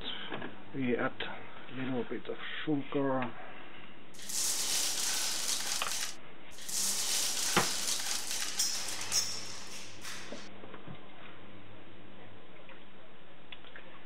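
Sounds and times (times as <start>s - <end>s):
sugar trickling into bottle: 4.2s - 10.5s.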